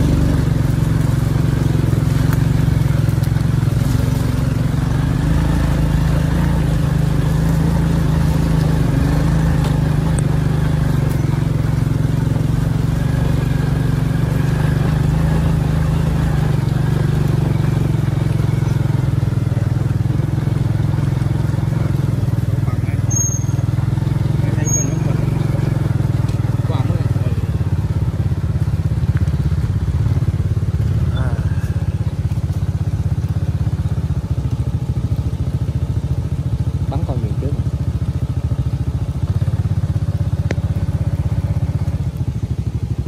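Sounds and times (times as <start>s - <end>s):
motorbike engine droning: 0.0s - 43.0s.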